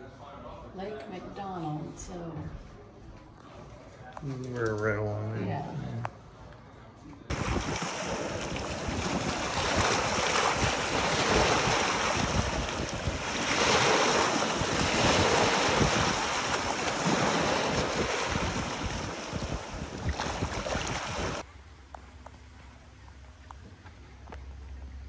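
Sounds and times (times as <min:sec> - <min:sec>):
waves breaking over rocks and pebbles: 0:07.3 - 0:21.4
wind buffeting microphone: 0:07.3 - 0:21.4.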